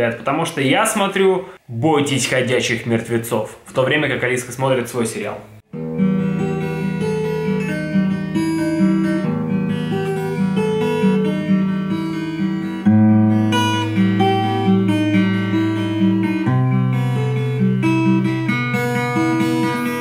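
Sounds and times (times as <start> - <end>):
fingerpicked acoustic guitar: 5.7 - 20.0.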